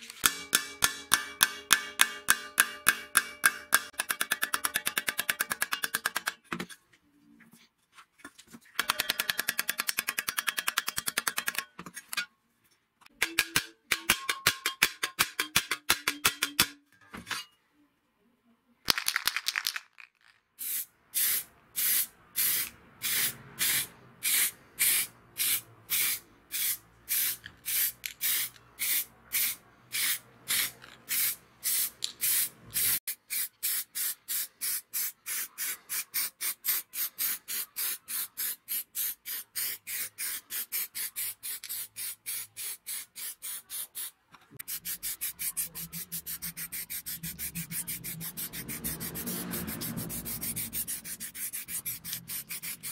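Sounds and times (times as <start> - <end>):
hammer tapping steel disc: 0.1 - 6.5, 8.8 - 12.3, 13.1 - 16.9
spray paint hissing: 20.6 - 52.9.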